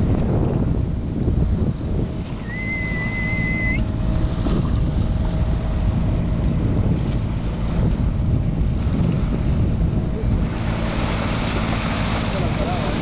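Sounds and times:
boat bow wave rushing: 0.0s - 13.0s
wind buffeting microphone: 0.0s - 13.0s
high whistle: 2.4s - 3.9s.

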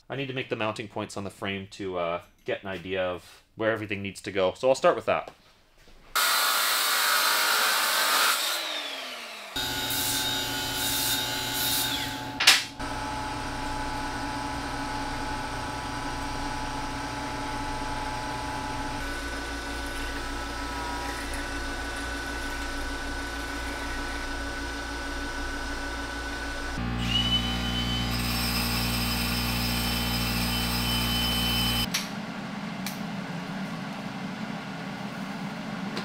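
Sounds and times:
angle grinder cutting metal: 6.2s - 12.6s, 17.9s - 31.9s
lathe motor running: 8.6s - 31.9s.

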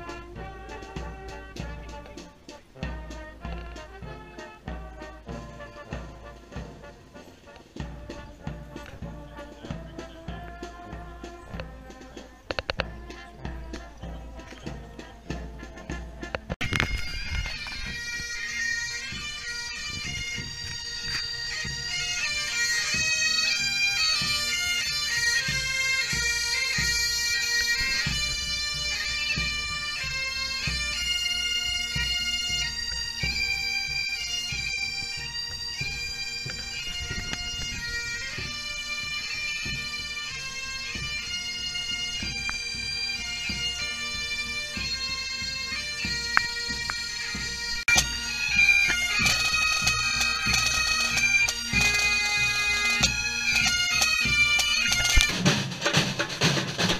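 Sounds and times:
bagpipes playing melody over drone: 0.0s - 55.4s
drums beating: 0.0s - 56.9s.

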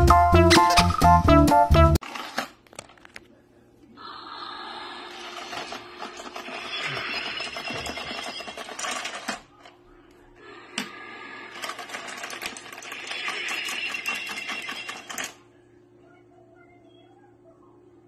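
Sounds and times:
small geared motor whirring and clattering: 5.2s - 9.4s, 11.5s - 15.4s.

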